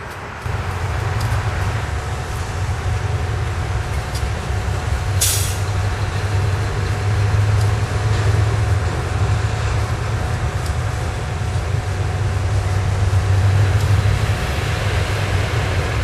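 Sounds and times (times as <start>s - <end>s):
diesel locomotive droning: 0.0s - 16.0s
rolling railcar clicks: 0.0s - 16.0s
brake air hiss: 5.1s - 6.0s.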